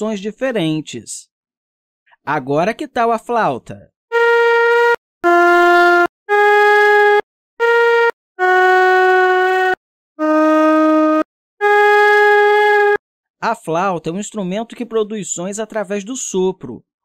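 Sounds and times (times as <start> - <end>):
flute melody: 4.1 - 13.0.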